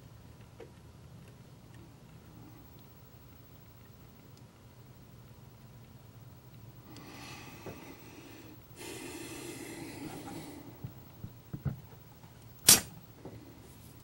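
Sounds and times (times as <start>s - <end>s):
person breathing noisily: 6.9s - 11.0s.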